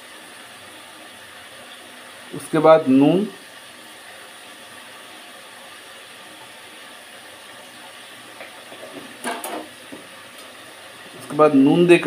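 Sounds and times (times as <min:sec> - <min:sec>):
fish frying in oil: 0:00.0 - 0:12.0.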